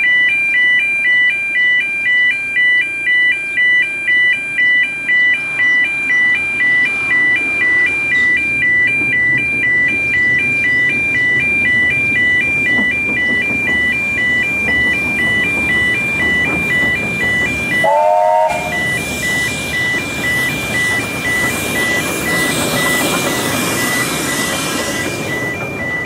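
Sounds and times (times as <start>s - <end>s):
crossing alarm warbling two-tone: 0.0s - 26.0s
steam train rumbling: 5.4s - 26.0s
locomotive whistle blast: 17.3s - 22.0s.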